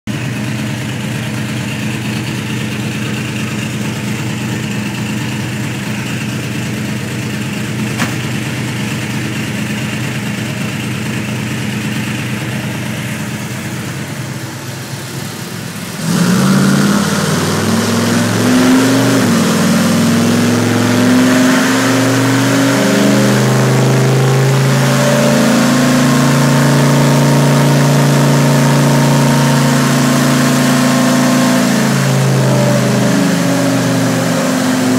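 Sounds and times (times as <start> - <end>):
engine revving on dyno: 12.0 - 34.9.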